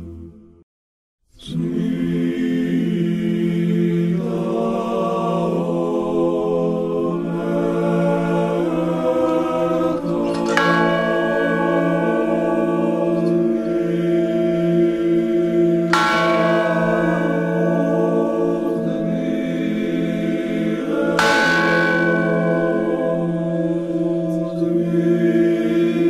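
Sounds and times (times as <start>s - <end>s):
choral chanting: 1.4s - 26.0s
church bell ringing: 10.0s - 26.0s.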